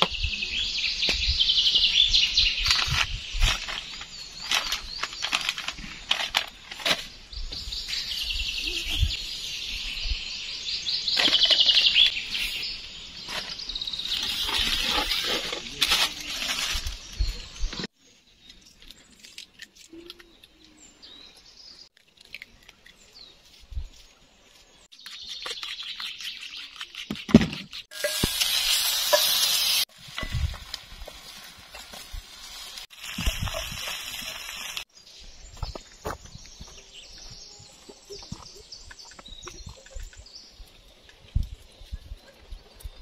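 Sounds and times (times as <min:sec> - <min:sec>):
songbirds chirping and trilling: 0:00.0 - 0:19.3, 0:19.9 - 0:27.9, 0:33.4 - 0:43.0.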